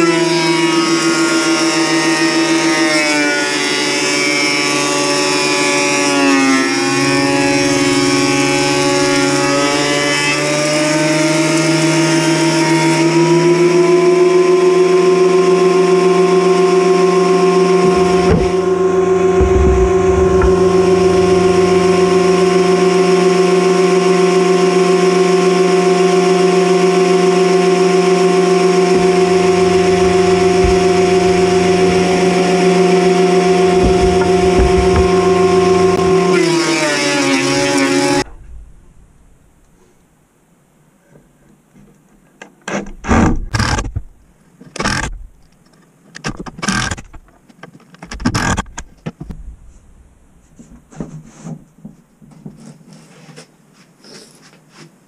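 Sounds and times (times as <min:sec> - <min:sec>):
woodworking machine motor whine: 0:00.0 - 0:38.3.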